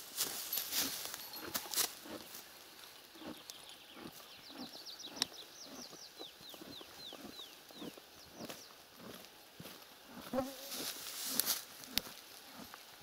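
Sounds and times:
horse shifting in grass: 0:00.0 - 0:04.6, 0:10.1 - 0:12.8.

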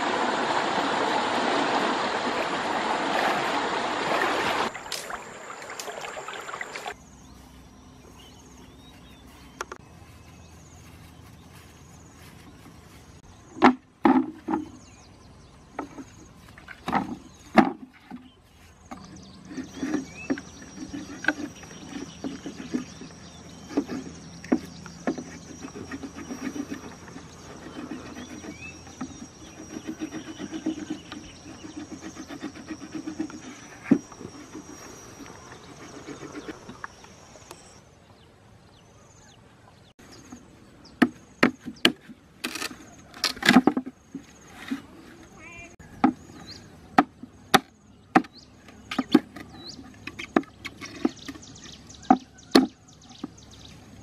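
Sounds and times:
knife cutting bamboo: 0:41.0 - 0:43.9.

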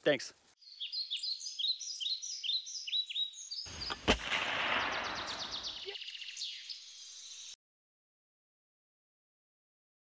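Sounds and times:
birds chirping: 0:00.6 - 0:07.6
loud bang with rumbling tail: 0:04.1 - 0:05.8.

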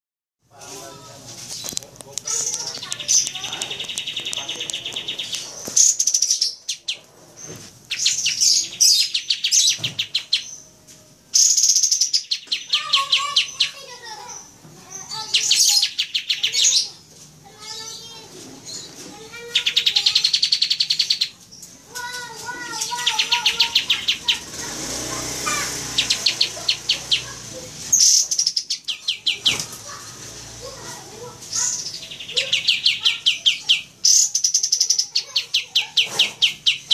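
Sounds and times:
bird rapid high trills: 0:22.8 - 0:30.8.

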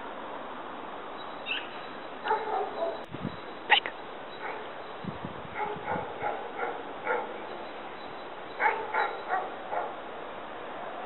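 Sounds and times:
dog barking: 0:02.2 - 0:03.0, 0:04.4 - 0:04.7, 0:05.5 - 0:07.4, 0:08.6 - 0:10.0.

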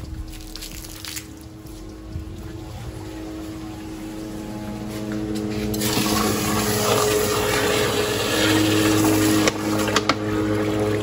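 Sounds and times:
pump humming: 0:00.0 - 0:11.0
water rushing and splashing: 0:05.7 - 0:11.0.

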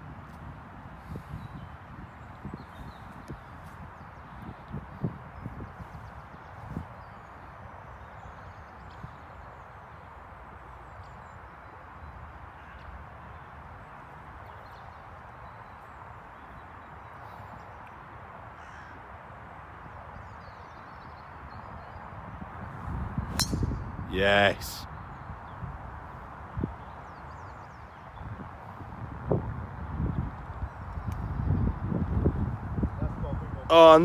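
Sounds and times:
wind rumble on microphone: 0:00.0 - 0:10.0, 0:19.3 - 0:34.0
faint bird calls: 0:18.5 - 0:19.1.

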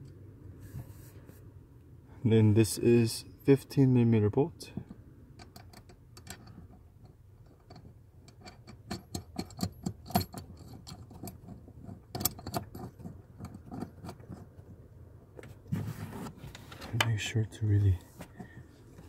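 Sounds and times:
metallic clicks of bolt and washer: 0:05.3 - 0:14.2.

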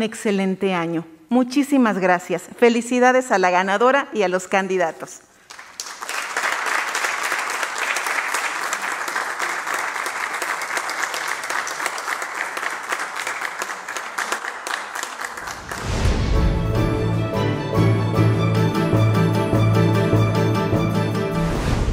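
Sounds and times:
audience applauding: 0:05.4 - 0:16.3
music: 0:15.7 - 0:21.9.

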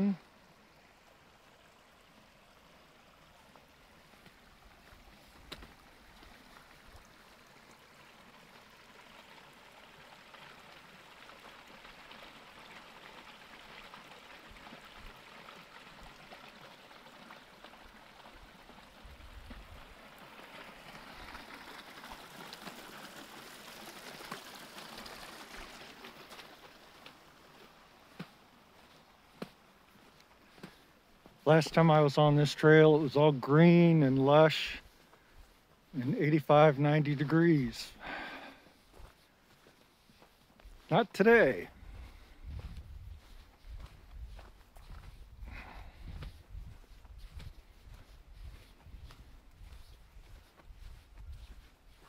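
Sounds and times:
runoff water trickling: 0:00.0 - 0:52.0.

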